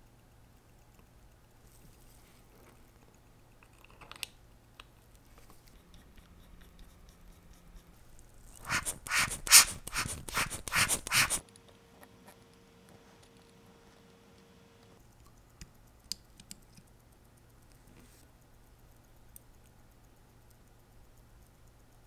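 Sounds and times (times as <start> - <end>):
scratchy rubbing strokes: 5.7 - 11.4.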